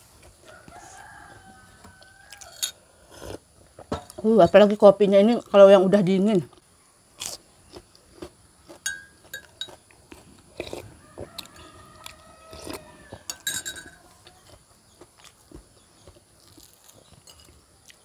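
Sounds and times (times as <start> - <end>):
chewing: 6.5 - 18.0.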